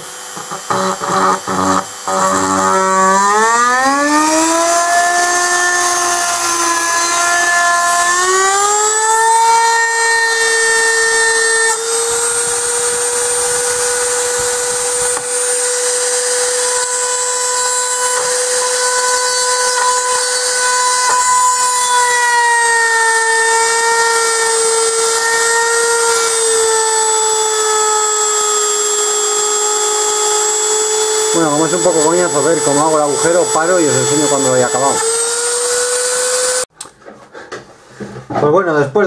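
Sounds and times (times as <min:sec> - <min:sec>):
rotary tool drilling metal: 0:00.0 - 0:36.7.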